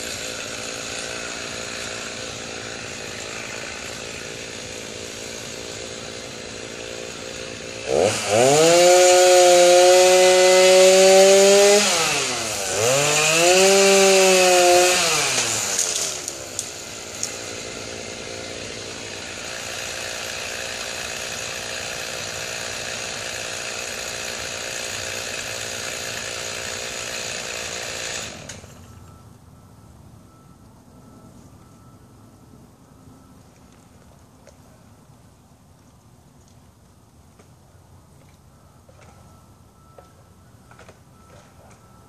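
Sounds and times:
chainsaw revving and cutting: 0:00.0 - 0:28.9
chainsaw idling: 0:00.0 - 0:29.0.

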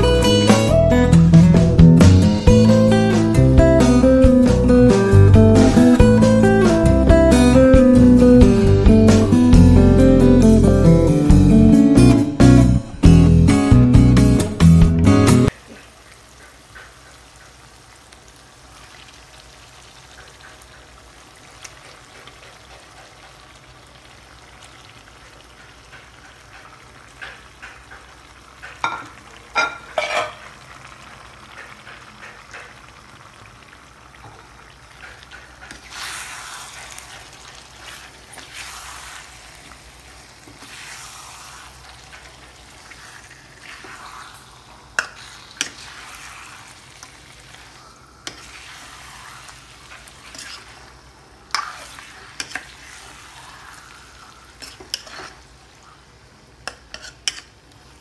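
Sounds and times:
paste sizzling in a wok: 0:15.5 - 0:58.0
metal spatula scraping a pan: 0:29.6 - 0:30.5, 0:35.3 - 0:39.6, 0:42.9 - 0:46.8, 0:48.2 - 0:50.9, 0:51.5 - 0:53.8, 0:54.6 - 0:55.4, 0:56.6 - 0:57.5.

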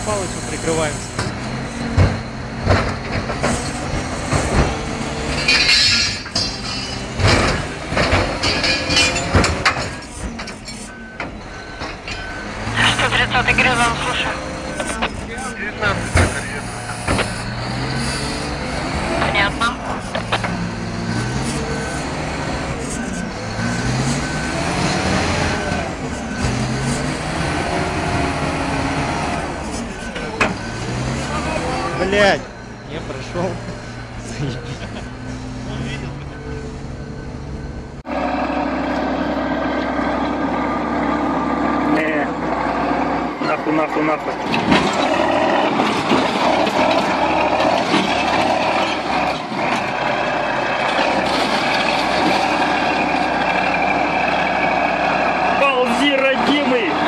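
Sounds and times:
diesel engine revving: 0:00.0 - 0:57.0
electronic warning beeper: 0:10.9 - 0:16.0.

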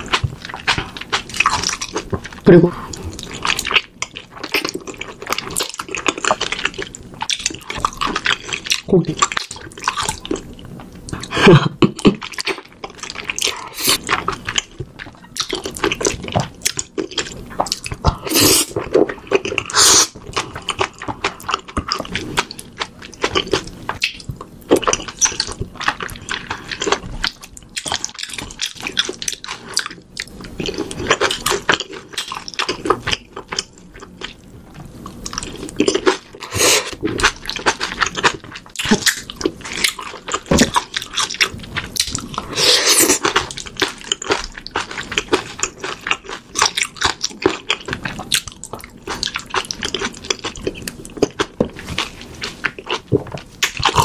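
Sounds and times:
wet chewing and lip-smacking: 0:00.0 - 0:54.0.

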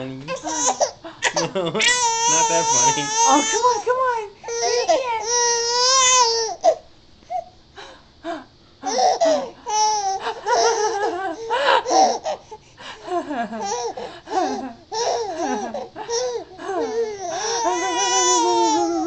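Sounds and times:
baby laughing: 0:00.3 - 0:03.8, 0:08.8 - 0:12.4, 0:13.6 - 0:19.0.

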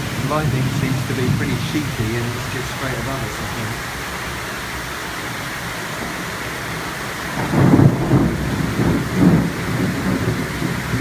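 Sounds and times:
heavy rain hissing: 0:00.0 - 0:11.0
thunder rumbling: 0:00.0 - 0:11.0.

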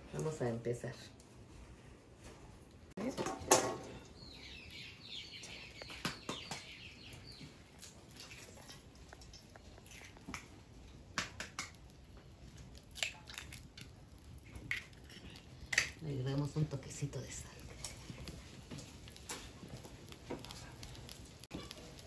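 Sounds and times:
bird chirping: 0:03.9 - 0:07.6
eggs cracked on a pan rim: 0:12.9 - 0:13.9, 0:14.6 - 0:16.0.

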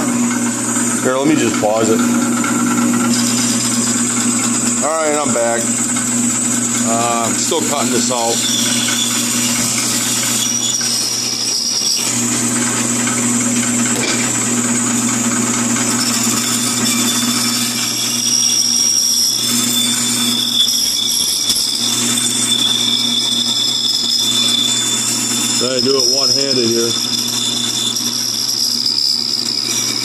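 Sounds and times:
bandsaw cutting wood: 0:00.0 - 0:30.0.

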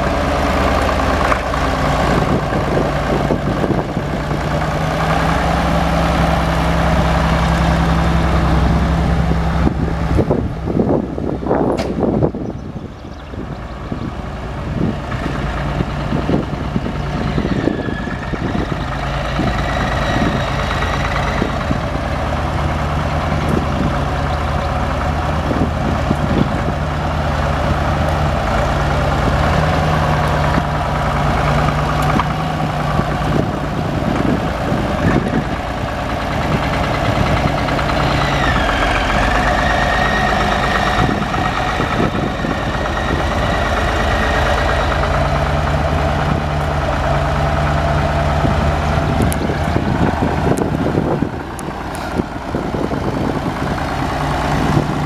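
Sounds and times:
tractor diesel engine idling: 0:00.0 - 0:55.0.

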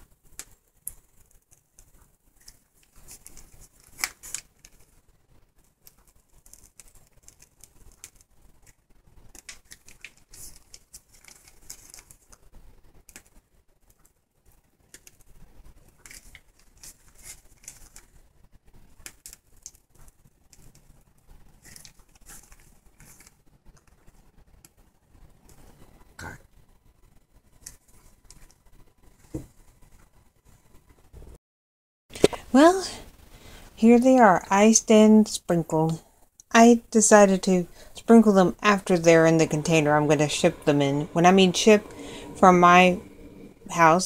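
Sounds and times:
plastic piping bag crinkling: 0:00.0 - 0:25.1.

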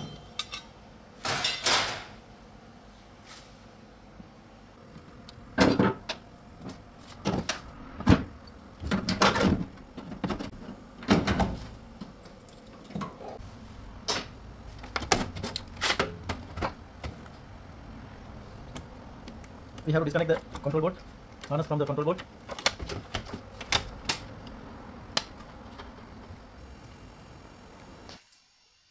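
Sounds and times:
washing machine parts clattering: 0:00.0 - 0:02.2, 0:07.2 - 0:13.4.

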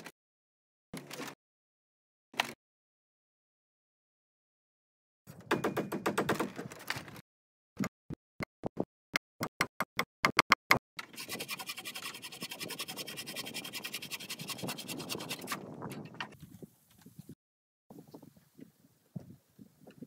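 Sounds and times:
hatchet chopping wood: 0:05.5 - 0:06.6
saw rasping through wood: 0:11.0 - 0:16.0.

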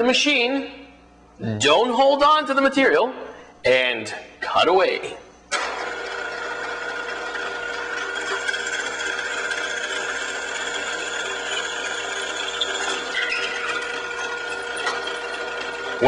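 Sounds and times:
drill press whine: 0:05.5 - 0:16.0.

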